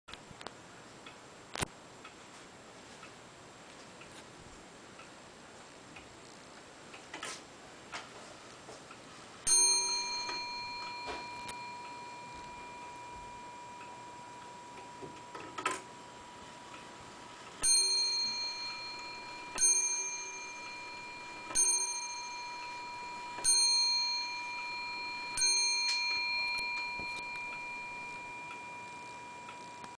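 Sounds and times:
clock movement clicking: 8.8s - 30.0s
wall clock striking a bell: 9.5s - 16.6s, 17.5s - 30.0s.

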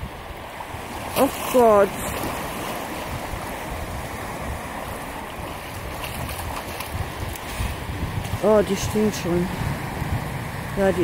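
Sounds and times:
small waves washing on shore: 0.0s - 11.0s
feet wading in shallow water: 0.1s - 10.7s.

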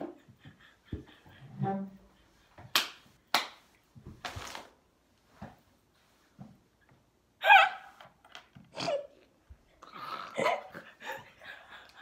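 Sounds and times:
person giggling: 0.0s - 2.5s.

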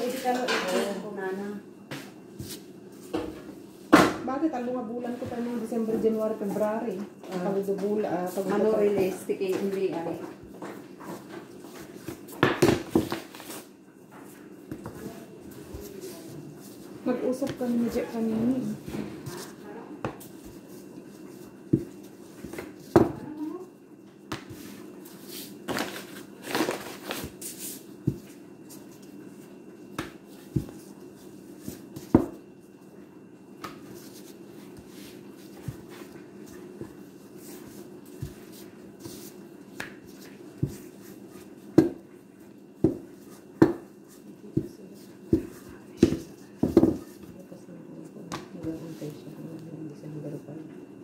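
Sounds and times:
steady low hum: 0.0s - 51.0s
rolling pin knocking on countertop: 12.4s - 13.2s, 32.0s - 32.4s, 41.8s - 42.0s, 42.8s - 43.9s, 45.3s - 47.0s.

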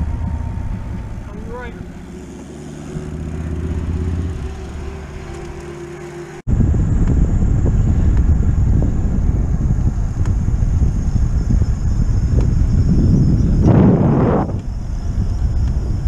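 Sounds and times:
wind rumble on microphone: 0.0s - 2.2s, 6.5s - 16.0s
low engine-like hum: 0.0s - 16.0s.

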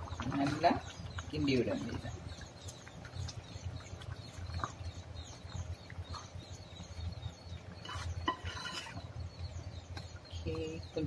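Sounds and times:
faint bird chirps: 0.0s - 11.0s
spoon scraping pot: 7.8s - 9.0s.

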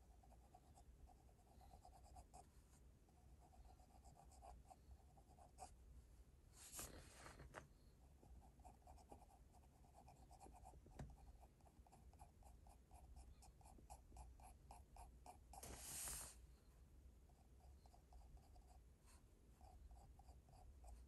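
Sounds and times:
pencil scratching on paper: 3.3s - 5.8s, 8.3s - 16.4s, 17.4s - 21.0s.

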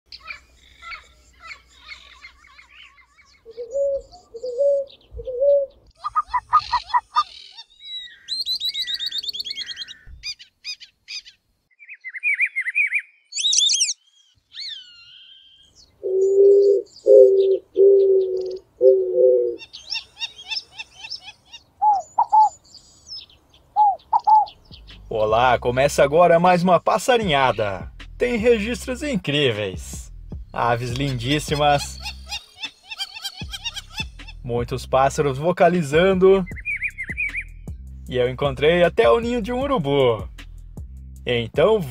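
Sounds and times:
birds twittering chirps: 0.1s - 27.8s, 30.3s - 34.5s, 35.5s - 38.2s
low even bird notes: 3.0s - 10.4s, 11.8s - 20.7s, 21.8s - 26.1s, 35.3s - 41.9s
clear high bird whistles: 3.3s - 10.4s, 11.8s - 21.2s, 36.5s - 37.6s
fast high bird trill: 6.0s - 15.8s, 31.1s - 34.4s, 36.5s - 37.7s.

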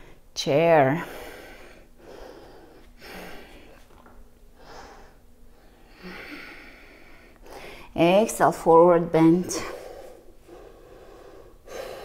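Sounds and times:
woman breathing softly: 4.6s - 8.0s, 9.6s - 12.0s.

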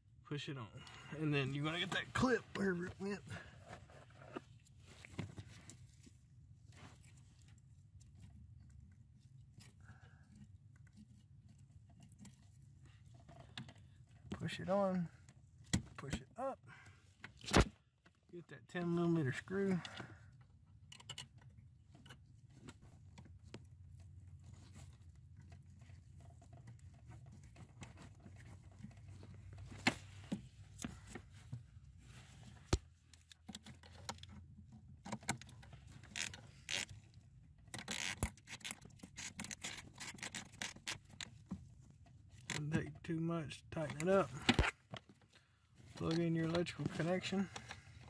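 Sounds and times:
tool clicks and scrapes: 37.7s - 41.4s.

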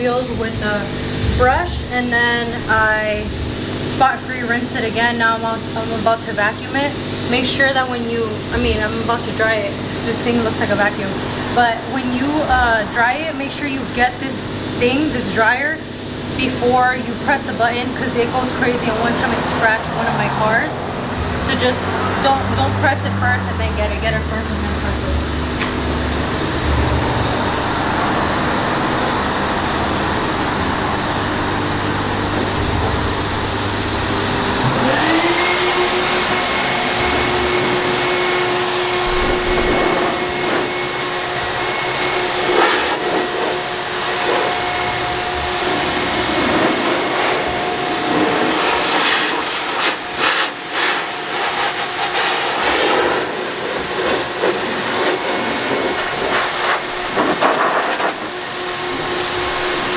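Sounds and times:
blower motor whine: 0.0s - 59.9s
electric blower rushing air: 0.0s - 59.9s.

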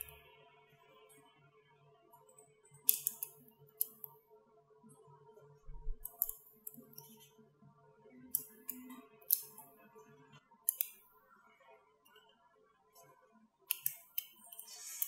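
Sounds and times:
magnetic balls clicking: 10.7s - 11.1s.

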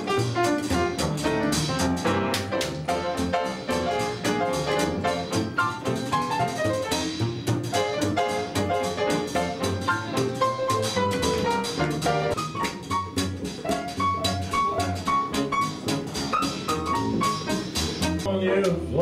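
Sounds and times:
drum kit steady beat: 0.0s - 18.8s
piano: 0.0s - 19.0s.

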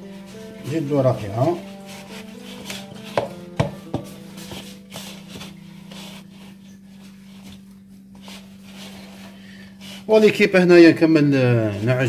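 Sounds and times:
hand kneading dough in metal bowl: 0.0s - 10.6s
quiet background music: 0.0s - 12.0s.

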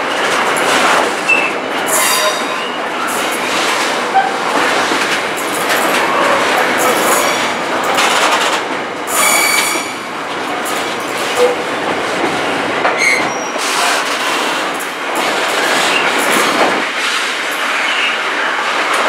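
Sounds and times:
train wheels rolling on rails: 0.0s - 19.0s
high-pitched wheel squeals: 9.1s - 10.0s.

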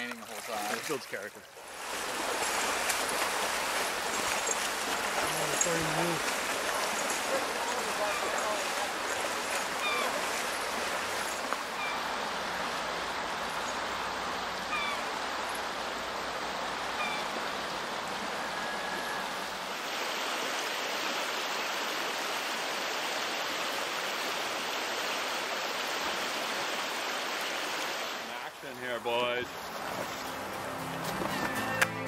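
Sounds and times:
river flowing over gravel: 0.0s - 32.0s
faint bird chirps: 9.8s - 10.2s.

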